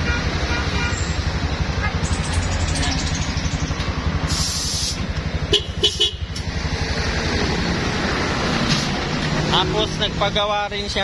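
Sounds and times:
engine idling: 0:00.0 - 0:06.9.

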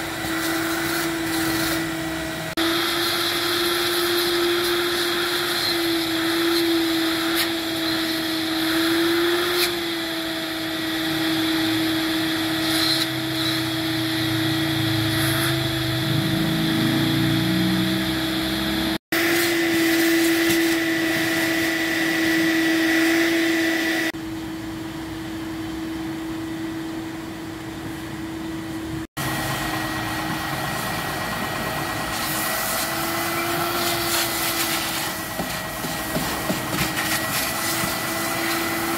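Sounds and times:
vacuum cleaner running: 0:00.0 - 0:38.9
low sound rising in pitch: 0:14.2 - 0:19.0.

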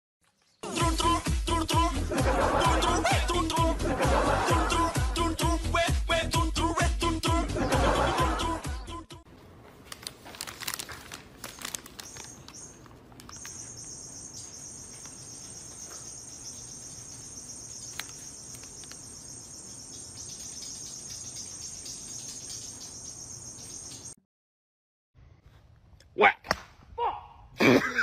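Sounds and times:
paper crinkling: 0:09.4 - 0:13.8, 0:17.7 - 0:19.1
shrill insect trill: 0:12.0 - 0:24.2.

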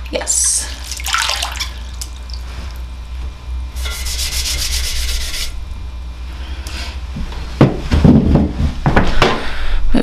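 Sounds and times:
steady low hum: 0:00.0 - 0:10.0
sponge rubbing pottery wheel: 0:03.7 - 0:05.6.

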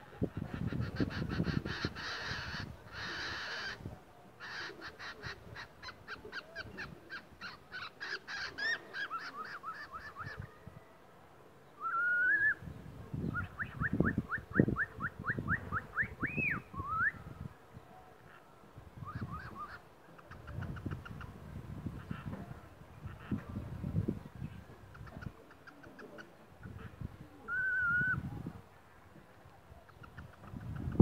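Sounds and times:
cockatiel whistles: 0:27.5 - 0:28.2.

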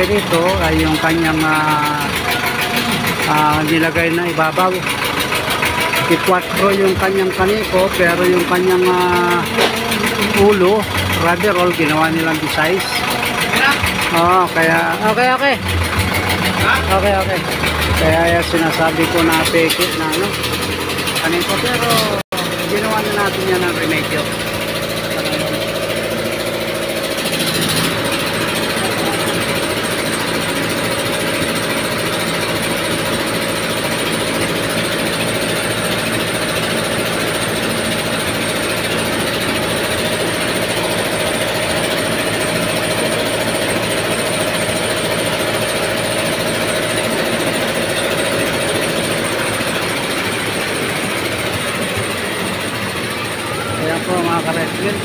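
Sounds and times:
rice mill mechanical din: 0:00.0 - 0:55.0
steady high tone: 0:45.2 - 0:55.0.

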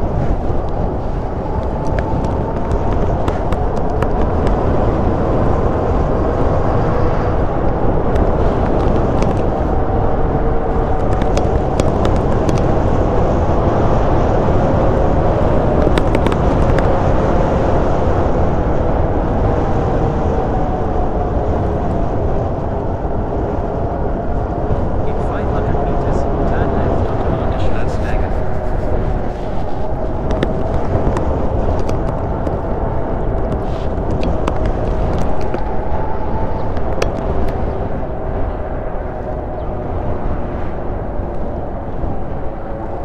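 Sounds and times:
wind noise: 0:00.0 - 0:43.0
tyres on asphalt: 0:07.6 - 0:17.0, 0:23.7 - 0:39.6.

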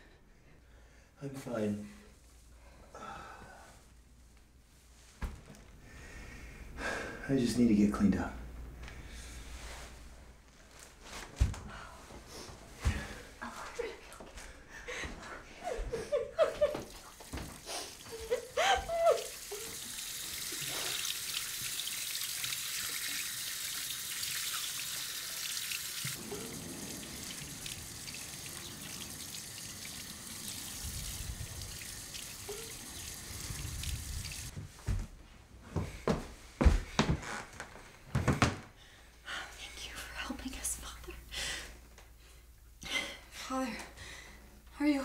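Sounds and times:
tap water running into sink: 0:19.0 - 0:34.5.

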